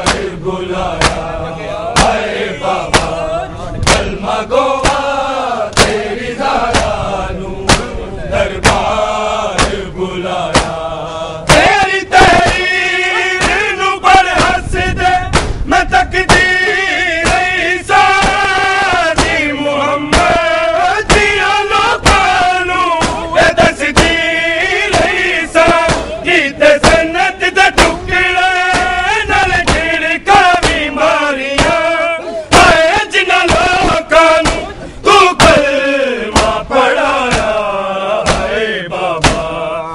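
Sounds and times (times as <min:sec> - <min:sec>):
men singing a lament in unison: 0:00.0 - 0:39.9
hands slapping chests: 0:01.0 - 0:01.3, 0:02.0 - 0:02.2, 0:02.9 - 0:03.2, 0:03.9 - 0:04.1, 0:05.7 - 0:06.0, 0:10.5 - 0:10.8, 0:15.4 - 0:15.6.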